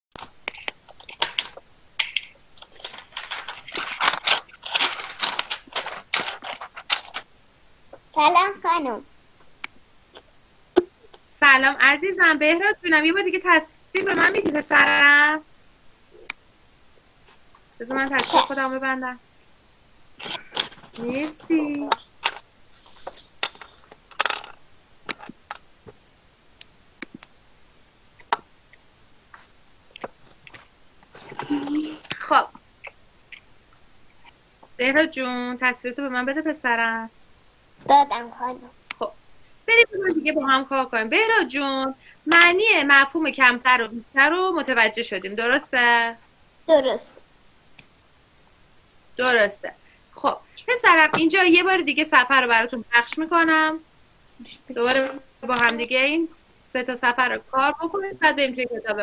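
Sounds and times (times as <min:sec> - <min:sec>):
irregular rustling: 0:00.1 - 0:07.4, 0:20.2 - 0:26.3, 0:29.3 - 0:32.2
short hiss: 0:22.7 - 0:23.9.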